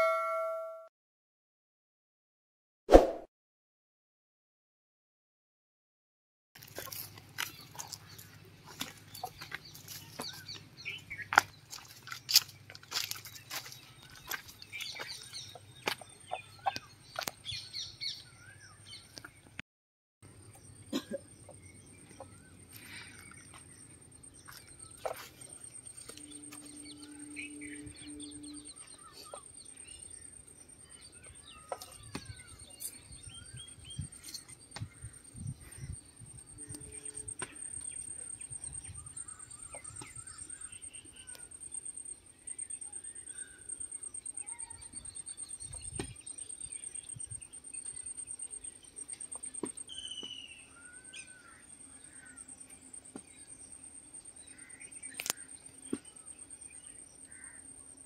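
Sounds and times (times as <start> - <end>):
birds chirping: 6.8 - 19.6, 20.3 - 58.0
footsteps crunching through dry leaves: 11.3 - 15.2
high-pitched whine: 25.8 - 29.1.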